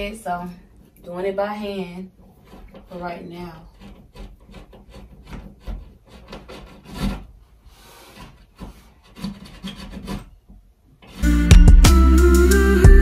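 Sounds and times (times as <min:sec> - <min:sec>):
loud guitar music: 0:11.2 - 0:13.0.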